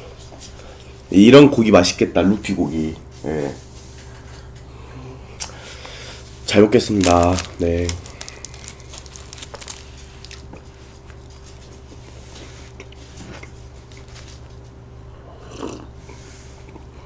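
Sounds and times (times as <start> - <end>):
faint steady hum: 0.0 - 17.0
crumbly topping crackling: 6.5 - 13.0
bread chewing: 6.8 - 14.8.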